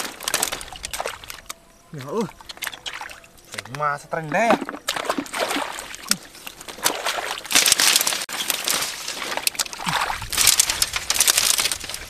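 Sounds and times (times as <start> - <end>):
wading through muddy water: 0.0 - 12.0.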